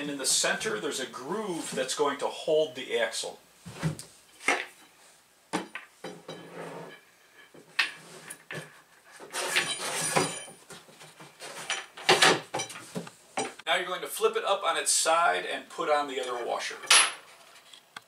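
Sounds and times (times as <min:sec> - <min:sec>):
plastic and steel parts clattering: 0:07.7 - 0:13.6
scraping rattle: 0:09.2 - 0:10.6.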